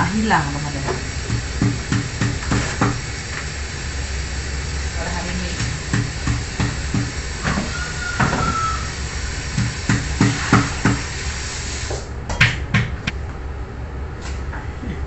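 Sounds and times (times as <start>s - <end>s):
tap running into sink: 9.5s - 11.1s.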